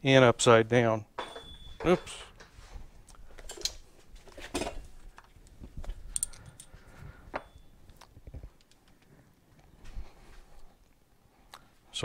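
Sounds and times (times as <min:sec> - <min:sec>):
metal parts clinking on workbench: 0:01.2 - 0:02.4, 0:06.1 - 0:06.7.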